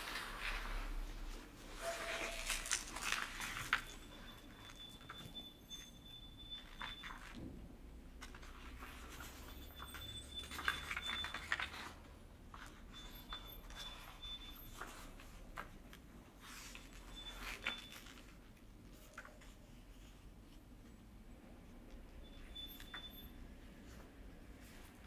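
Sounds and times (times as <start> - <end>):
paper sheets rustling: 1.8 - 4.0, 8.2 - 12.9.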